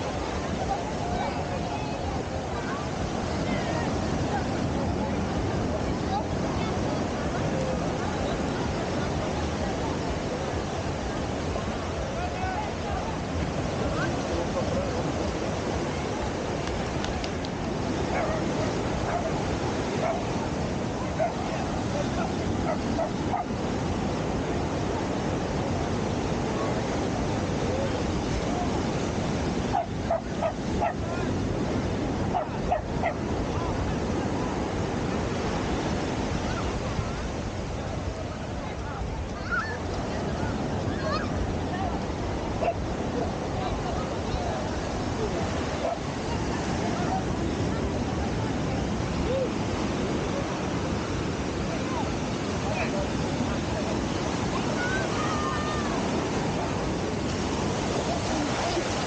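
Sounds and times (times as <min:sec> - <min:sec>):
breaking surf: 0:00.0 - 0:59.0
small dog barking: 0:18.1 - 0:19.4, 0:20.0 - 0:20.3, 0:21.2 - 0:21.6, 0:22.2 - 0:23.5, 0:29.7 - 0:31.1, 0:32.3 - 0:33.2, 0:42.6 - 0:42.8, 0:45.8 - 0:46.0.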